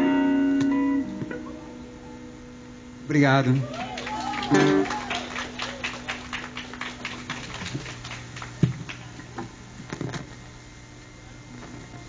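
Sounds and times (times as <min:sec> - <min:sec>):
audience applauding: 0:03.5 - 0:09.3.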